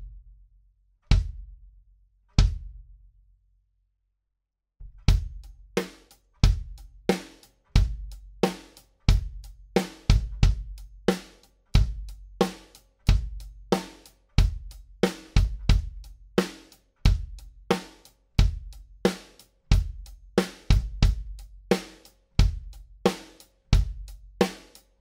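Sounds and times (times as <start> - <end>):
kick drum: 1.1 - 1.6, 2.4 - 2.9, 5.0 - 5.6, 6.4 - 6.8, 7.7 - 8.2, 9.1 - 9.4, 10.1 - 10.8, 11.8 - 12.1, 14.4 - 14.7, 15.4 - 16.0, 18.4 - 18.7, 19.7 - 20.0, 20.7 - 21.4, 22.4 - 22.7, 23.8 - 24.1
snare drum: 5.1 - 18.0, 19.1 - 24.8
hi-hat cymbals: 5.4 - 24.9.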